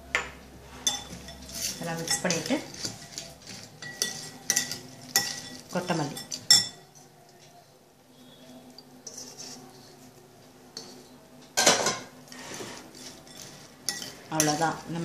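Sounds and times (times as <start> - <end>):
metal spoon stirring in glass bowl: 0.8 - 7.1, 8.4 - 11.2, 12.3 - 15.0.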